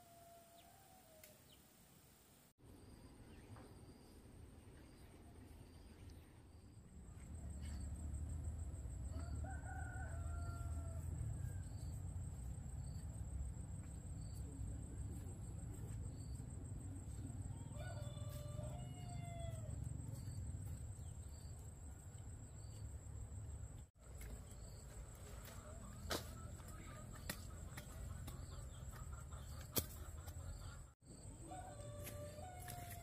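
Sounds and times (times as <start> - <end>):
rooster crowing: 9.1 - 11.8, 17.5 - 19.8, 31.3 - 33.0.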